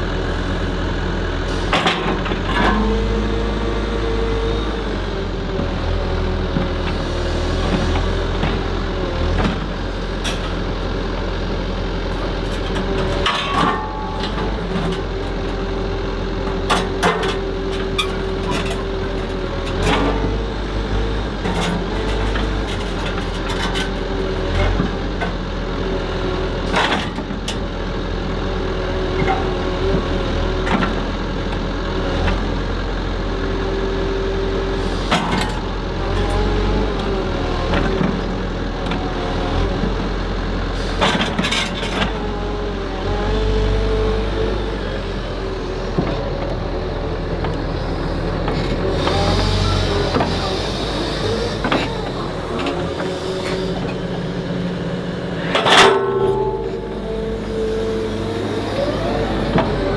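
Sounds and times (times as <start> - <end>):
excavator engine and hydraulics: 0.0 - 59.9.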